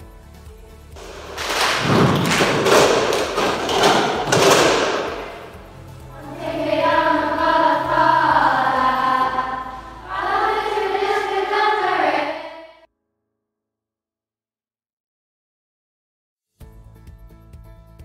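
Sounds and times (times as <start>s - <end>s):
girls singing together: 2.7s - 12.9s.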